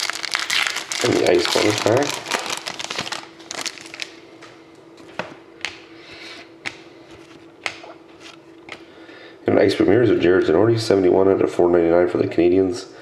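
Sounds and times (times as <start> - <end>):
foil wrapper crinkling: 0.0 - 4.2.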